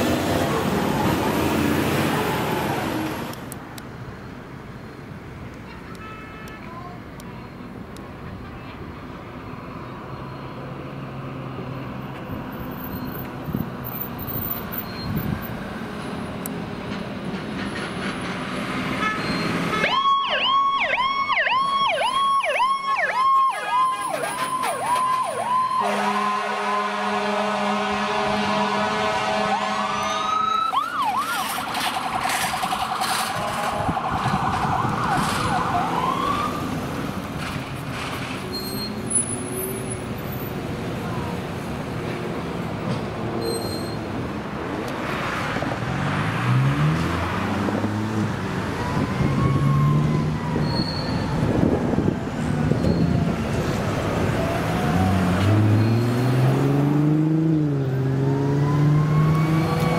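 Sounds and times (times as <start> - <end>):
siren yelping and warbling: 19.8 - 26.4, 30.2 - 36.6, 48.7 - 51.9, 58.5 - 59.9
fire engine rumble: 19.9 - 43.4, 48.2 - 55.5
air horn blast: 25.8 - 30.4.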